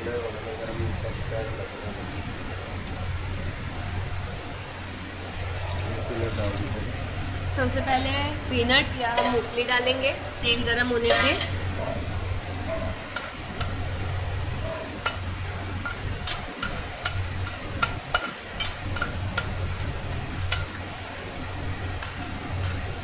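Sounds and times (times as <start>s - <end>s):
light sizzle: 0.0s - 23.0s
steady low hum: 0.0s - 23.0s
spoon tapping on pan: 15.0s - 20.9s.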